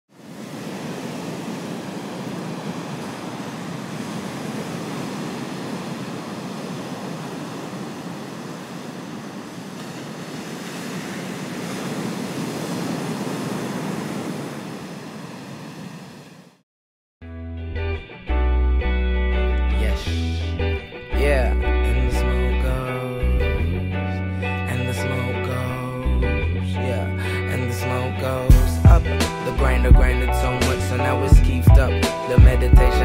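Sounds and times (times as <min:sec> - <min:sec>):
heavy surf breaking waves: 0:00.1 - 0:16.6, 0:26.8 - 0:33.0.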